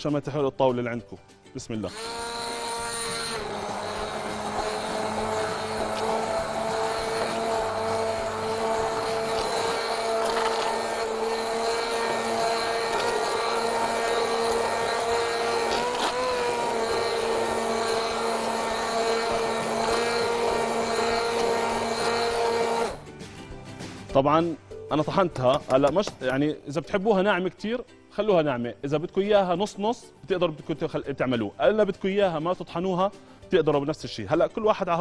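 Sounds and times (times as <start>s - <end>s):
electric hand blender running: 1.8s - 23.0s.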